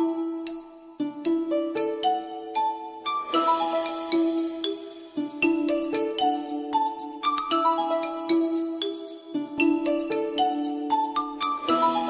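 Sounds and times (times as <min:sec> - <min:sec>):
chiming bell-like music: 0:00.0 - 0:12.0.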